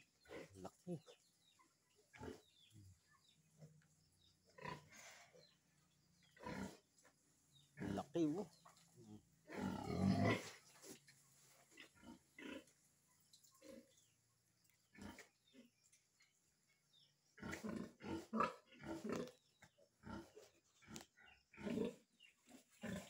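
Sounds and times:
pig grunting: 0:00.0 - 0:03.3, 0:04.4 - 0:05.6, 0:06.2 - 0:11.0, 0:11.7 - 0:12.7, 0:14.9 - 0:15.8, 0:17.4 - 0:23.0.

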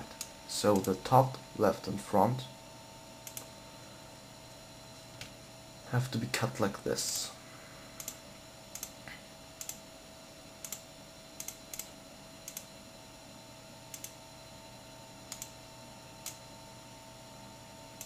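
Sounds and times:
faint electrical hum: 0:00.0 - 0:18.0
computer mouse clicking: 0:00.1 - 0:01.0, 0:03.2 - 0:03.5, 0:08.0 - 0:09.0, 0:09.6 - 0:09.8, 0:10.6 - 0:10.8, 0:11.4 - 0:12.7, 0:13.9 - 0:14.2, 0:15.3 - 0:15.6.

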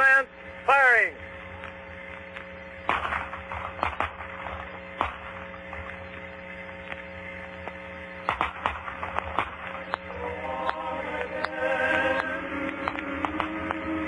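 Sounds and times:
steady hum: 0:00.0 - 0:14.0
anti-aircraft guns firing: 0:02.8 - 0:07.0, 0:07.6 - 0:10.2, 0:12.9 - 0:13.8.

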